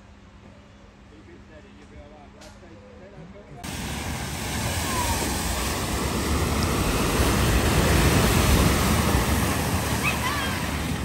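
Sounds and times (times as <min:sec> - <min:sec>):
vehicle splashing through water: 0:03.6 - 0:11.0.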